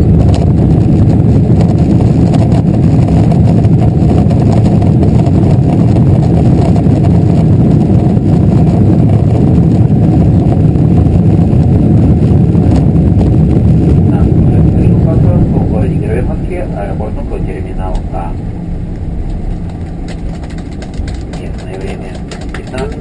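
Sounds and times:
jet engines running low: 0:00.0 - 0:23.0
wheels rolling on pavement: 0:18.8 - 0:23.0.

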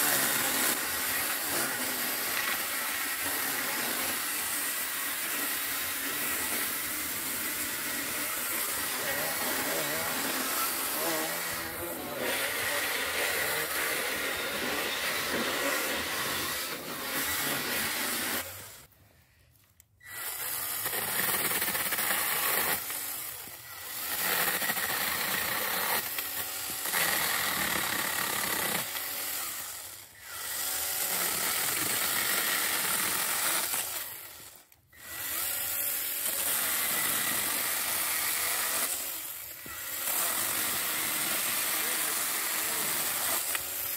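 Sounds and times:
chainsaw cutting wood: 0:00.0 - 0:19.0, 0:20.0 - 0:43.9.

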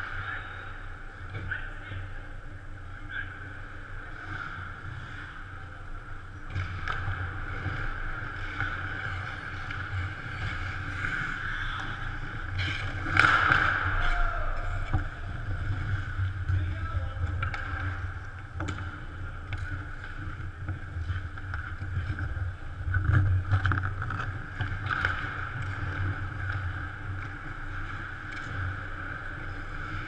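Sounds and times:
steady arena hum: 0:00.0 - 0:30.0
skates scraping ice: 0:03.2 - 0:30.0
hockey sticks and puck clacking: 0:06.2 - 0:30.0.

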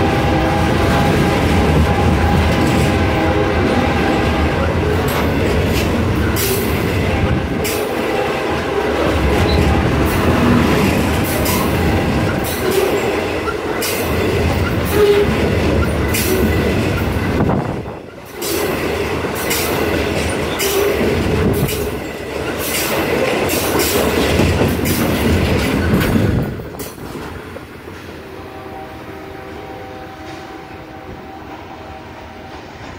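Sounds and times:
freight train rumbling past: 0:00.0 - 0:32.9
wheels clicking over rail joints: 0:09.0 - 0:28.1.

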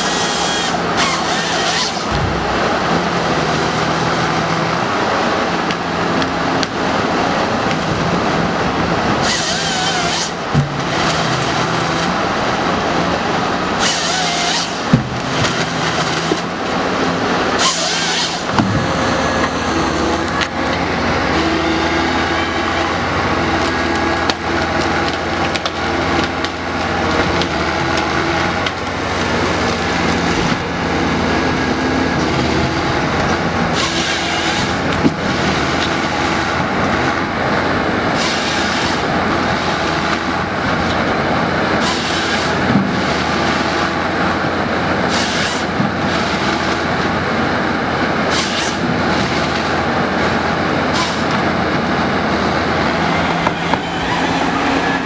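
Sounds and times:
chainsaw cross-cutting: 0:00.0 - 0:02.1, 0:09.2 - 0:11.5, 0:13.8 - 0:16.4, 0:17.6 - 0:18.6
harvester engine and hydraulics: 0:00.0 - 0:55.0.

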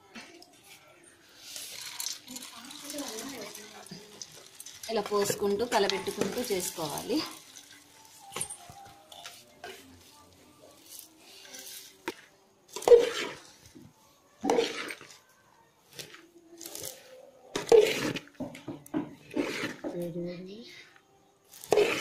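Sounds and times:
dry grains rustling: 0:01.3 - 0:13.8, 0:21.5 - 0:22.0.

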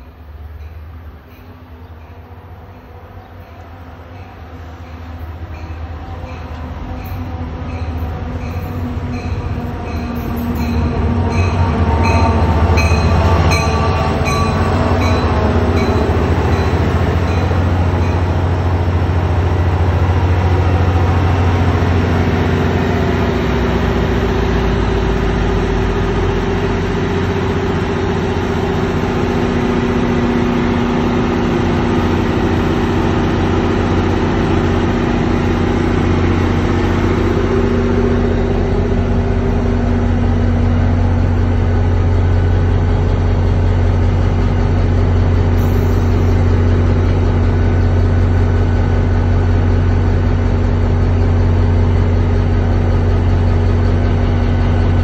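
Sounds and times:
diesel locomotive engine running: 0:00.0 - 0:55.0
locomotive bell ringing: 0:00.6 - 0:19.0.

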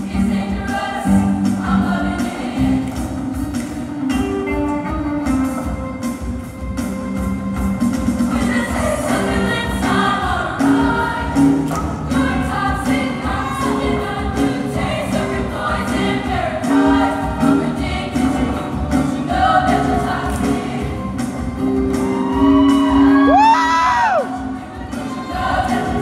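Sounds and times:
group of voices singing: 0:00.0 - 0:03.8, 0:08.3 - 0:26.0.

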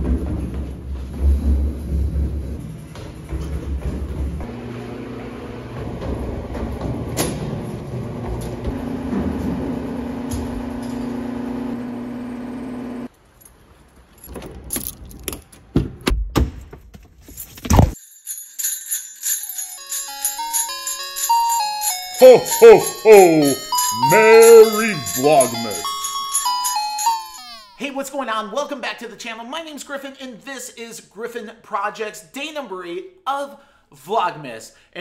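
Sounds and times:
keys jangling: 0:13.4 - 0:15.4
bell-like music: 0:18.0 - 0:27.8.

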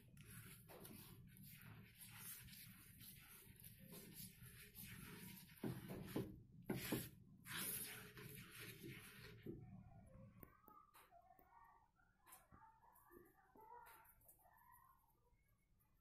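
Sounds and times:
spatula scraping and swishing in pan: 0:00.0 - 0:09.6.

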